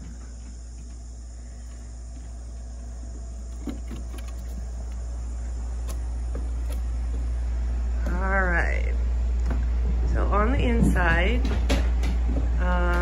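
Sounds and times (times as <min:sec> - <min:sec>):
footsteps on wooden steps: 0:00.0 - 0:05.1, 0:05.8 - 0:07.4, 0:09.4 - 0:13.0
low hum: 0:00.0 - 0:13.0.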